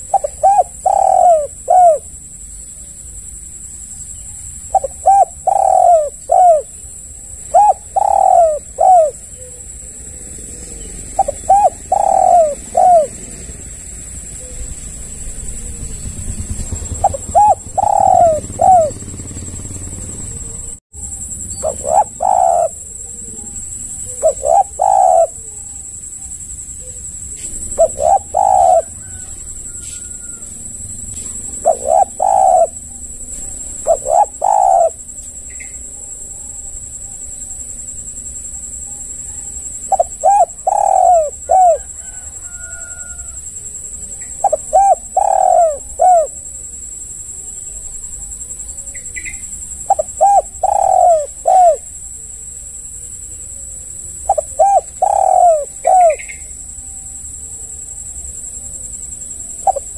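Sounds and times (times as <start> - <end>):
dove cooing: 0.0 - 3.2, 4.1 - 37.4, 38.2 - 58.7, 59.4 - 59.9
steady high-pitched hiss: 0.0 - 59.9.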